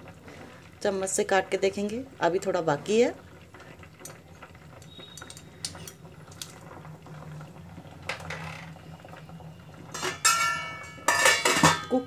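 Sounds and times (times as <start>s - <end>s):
vegetables boiling in water: 0.0s - 12.0s
metal ladle scraping a pot: 9.9s - 12.0s.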